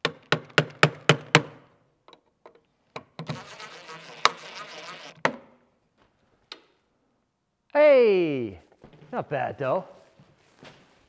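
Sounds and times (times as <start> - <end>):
impact driver buzzing: 3.2 - 5.3.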